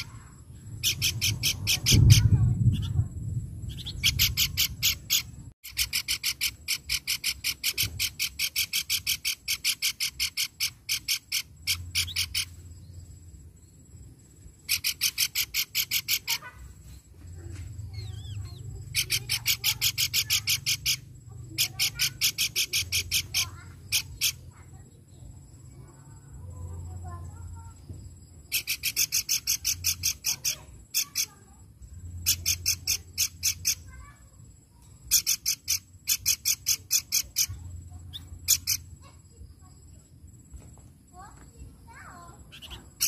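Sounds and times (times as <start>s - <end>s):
bird calling in rapid sharp notes: 0.8s - 3.0s, 3.7s - 12.6s, 14.6s - 16.6s, 18.0s - 24.5s.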